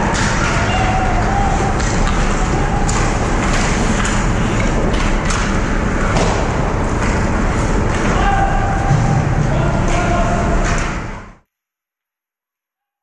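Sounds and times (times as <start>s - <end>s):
hockey sticks and puck knocking: 0.0s - 9.1s.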